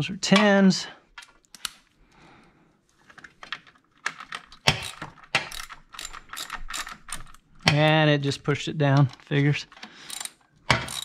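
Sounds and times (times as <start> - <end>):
hand ratchet clicking: 4.7 - 7.9, 10.1 - 11.0.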